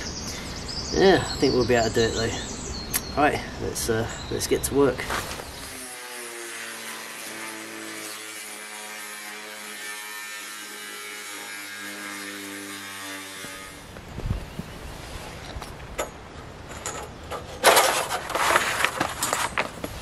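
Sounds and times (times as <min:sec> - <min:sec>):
angle grinder cutting steel: 0:05.7 - 0:13.9.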